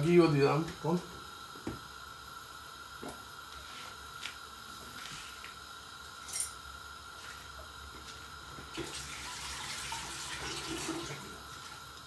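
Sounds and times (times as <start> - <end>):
oil sizzling in a pot: 0.0 - 12.0.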